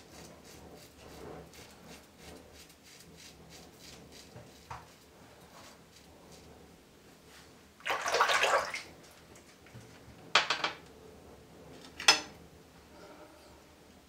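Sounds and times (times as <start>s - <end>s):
water splashing in sink: 7.8s - 9.6s.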